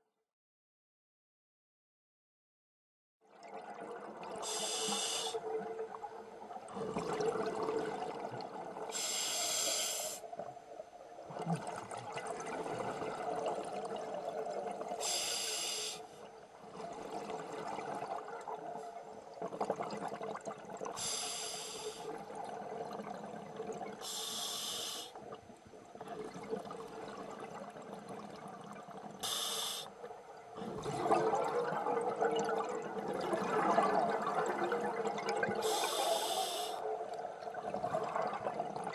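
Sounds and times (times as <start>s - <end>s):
exhaled air bubbling: 3.3s - 10.4s, 11.1s - 38.9s
regulator hissing inhalation: 4.5s - 5.4s, 9.0s - 10.2s, 15.0s - 16.2s, 21.0s - 22.1s, 24.0s - 25.2s, 29.2s - 30.0s, 35.6s - 36.8s.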